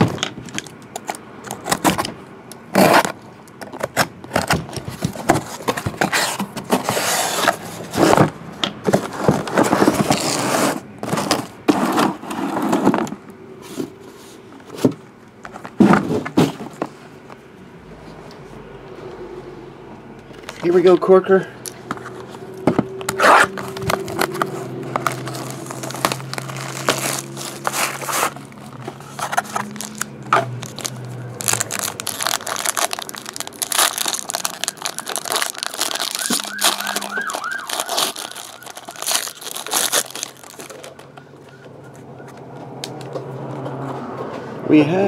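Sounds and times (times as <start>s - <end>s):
cellophane crinkling and tearing: 22.0s - 41.1s.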